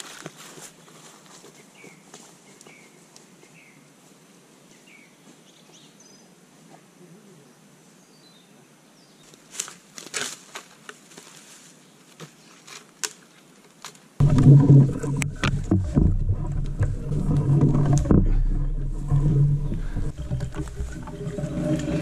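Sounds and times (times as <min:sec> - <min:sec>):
knocks and rustles of log: 0:12.1 - 0:22.0
log rumbling and knocking: 0:14.2 - 0:22.0.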